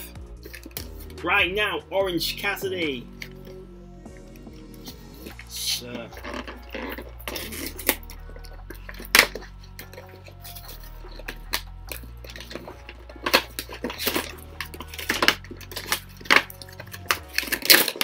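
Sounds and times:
packaging crinkling: 0:04.8 - 0:18.0.

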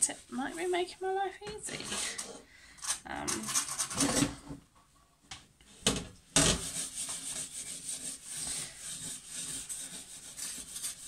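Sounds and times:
scourer scrubbing glass: 0:06.4 - 0:11.0.

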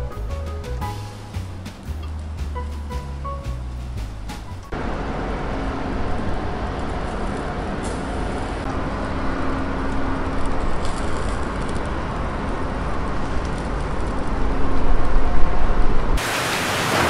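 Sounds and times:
rain: 0:04.8 - 0:17.0.

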